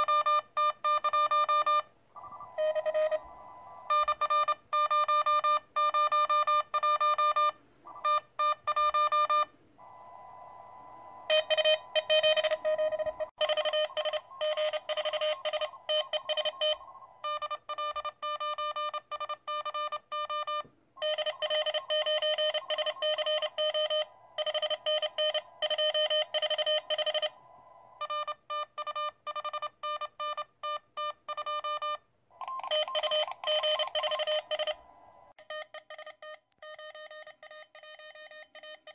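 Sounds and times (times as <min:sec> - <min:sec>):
morse code tones: 0:00.0 - 0:27.4, 0:28.0 - 0:38.9.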